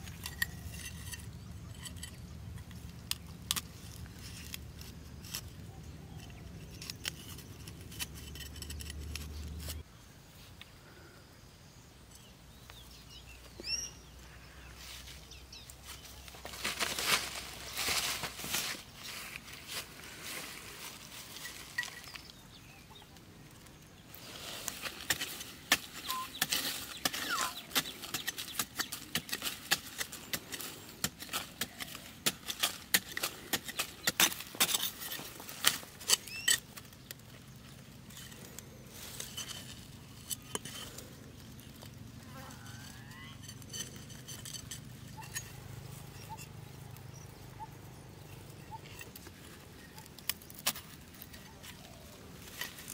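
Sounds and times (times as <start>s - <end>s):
faint chirps: 26.0s - 27.8s.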